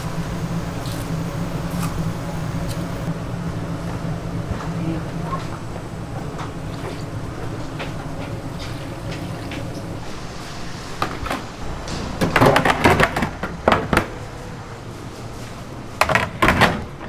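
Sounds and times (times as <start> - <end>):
steady background hum: 0.0 - 17.0
kitchen utensils clattering: 11.0 - 14.5.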